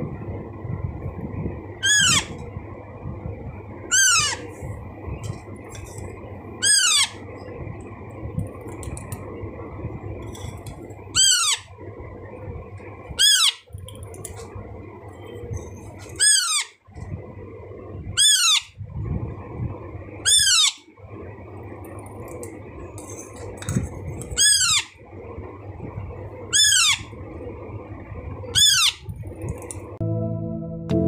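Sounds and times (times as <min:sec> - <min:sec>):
parrot chick squawking: 0:01.8 - 0:02.4, 0:03.9 - 0:04.5, 0:06.6 - 0:07.2, 0:11.1 - 0:11.7, 0:13.2 - 0:13.7, 0:16.1 - 0:16.8, 0:18.2 - 0:18.8, 0:20.2 - 0:20.8, 0:24.3 - 0:25.0, 0:26.5 - 0:27.1, 0:28.5 - 0:29.0.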